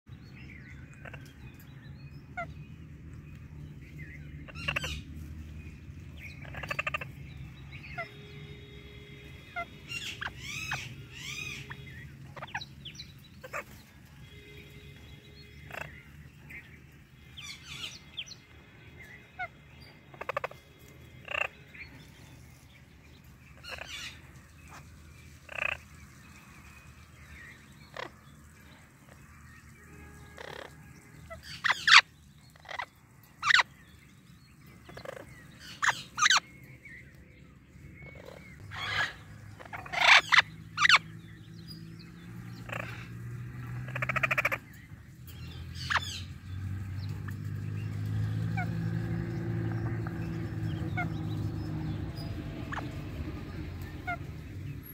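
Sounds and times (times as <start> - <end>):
parrots squawking: 4.4 - 5.1, 6.3 - 7.2, 7.8 - 14.0, 15.5 - 16.2, 19.4 - 22.0, 23.5 - 25.9, 27.9 - 28.2, 30.4 - 33.7, 34.9 - 36.5, 38.0 - 41.2, 42.4 - 44.8, 45.4 - 47.5, 48.2 - 54.7.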